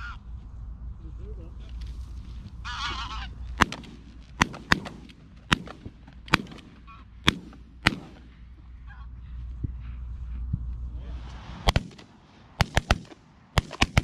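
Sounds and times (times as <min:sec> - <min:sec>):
shotgun shots: 0:03.6 - 0:08.5, 0:11.6 - 0:14.0.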